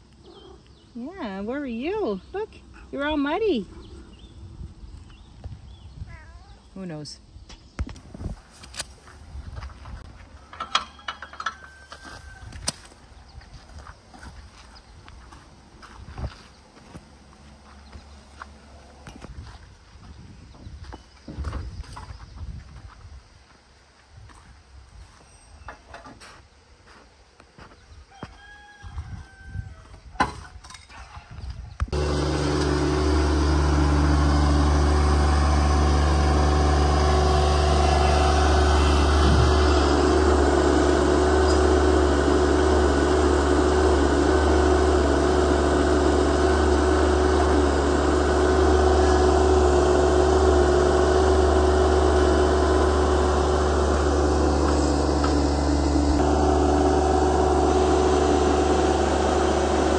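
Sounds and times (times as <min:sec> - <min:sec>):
tractor diesel engine running: 0:08.0 - 0:20.8, 0:31.9 - 0:59.9.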